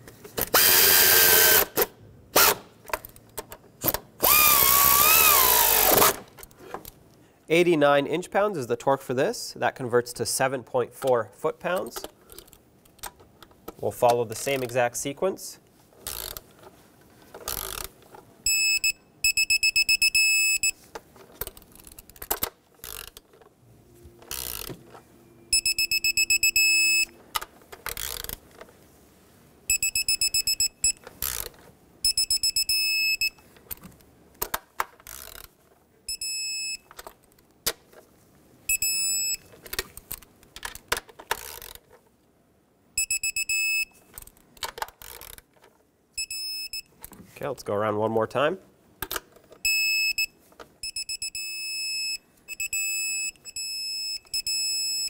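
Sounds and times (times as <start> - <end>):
torque wrench beeping: 0.6 - 1.7, 4.2 - 6.1, 18.5 - 20.8, 25.4 - 27.2, 29.7 - 31.4, 32.0 - 33.4, 38.7 - 39.4, 43.0 - 43.9, 46.2 - 46.9, 49.6 - 55.0
ratchet clicks: 16.0 - 16.4, 17.5 - 17.9, 21.4 - 23.2, 24.3 - 24.7, 27.9 - 28.4, 35.0 - 35.5.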